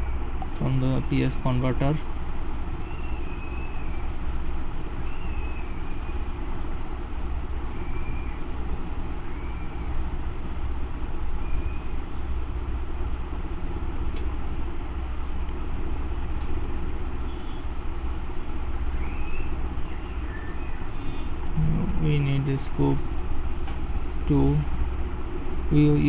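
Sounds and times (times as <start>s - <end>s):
faint wavering whistles: 2.8s - 4.2s, 4.8s - 6.6s, 7.7s - 8.6s, 9.2s - 10.2s, 11.3s - 12.0s, 17.2s - 18.3s, 18.9s - 21.4s.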